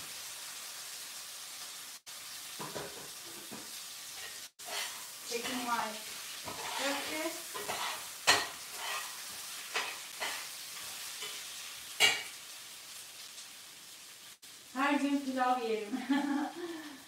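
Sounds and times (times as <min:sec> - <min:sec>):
rice sizzling in a pot: 0:00.0 - 0:17.0.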